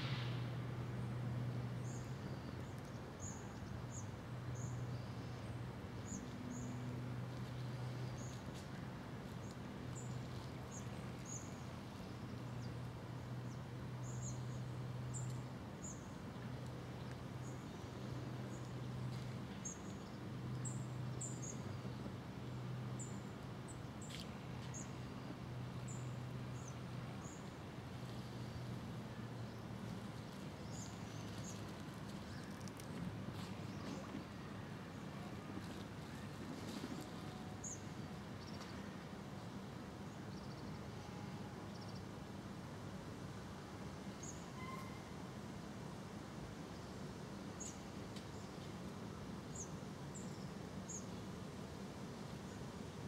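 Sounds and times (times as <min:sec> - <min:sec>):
steady hiss: 0:00.0 - 0:00.9.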